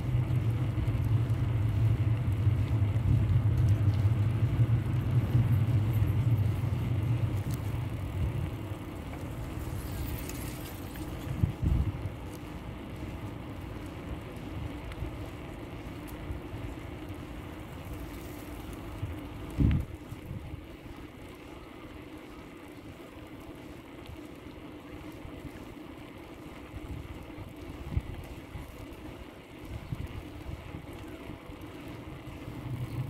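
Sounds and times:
bicycle tyres rumbling: 0:00.0 - 0:33.0
wind on microphone: 0:09.6 - 0:12.2, 0:19.0 - 0:20.8, 0:26.8 - 0:28.7.

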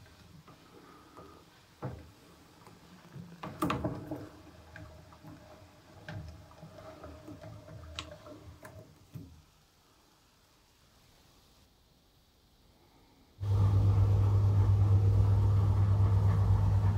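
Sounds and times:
wringer rollers clicking and knocking: 0:00.0 - 0:09.2, 0:14.6 - 0:16.9.

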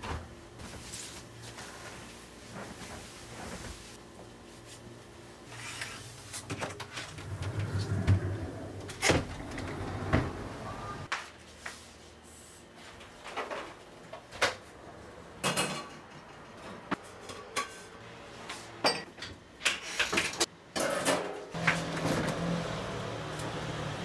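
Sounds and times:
curtain being drawn back: 0:05.5 - 0:06.1
window sliding open: 0:07.0 - 0:11.1.

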